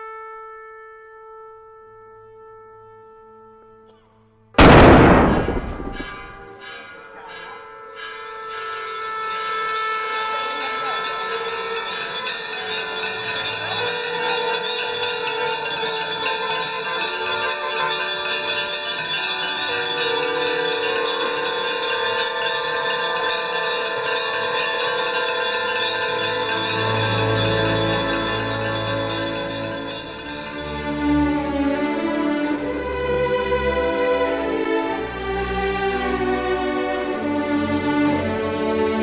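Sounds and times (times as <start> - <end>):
conch shells blown: 4.6 - 31.2
bells ringing rapidly: 6.9 - 31.4.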